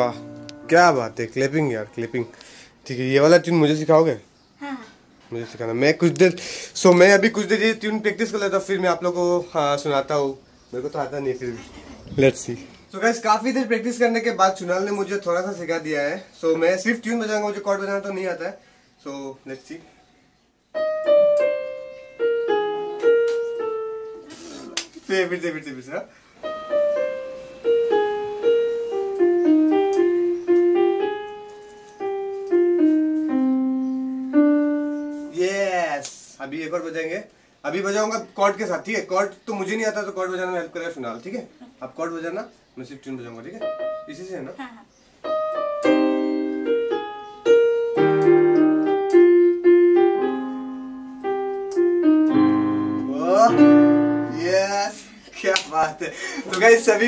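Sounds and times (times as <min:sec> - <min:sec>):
electronic keyboard melody: 0:00.0 - 0:02.1, 0:20.7 - 0:24.3, 0:26.4 - 0:35.4, 0:43.5 - 0:44.5, 0:45.2 - 0:54.9.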